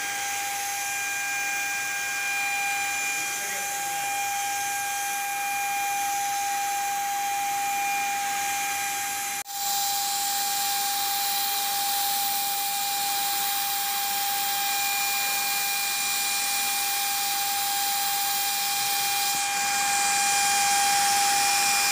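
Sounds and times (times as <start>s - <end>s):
blower motor whine: 0.0s - 21.9s
spray gun hissing: 9.0s - 14.6s, 15.3s - 21.9s.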